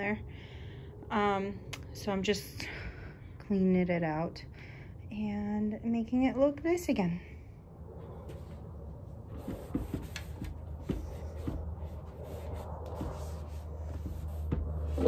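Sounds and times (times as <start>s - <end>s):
steady low hum: 0.0s - 15.0s
cloth rubbing on wooden chair: 9.2s - 15.0s.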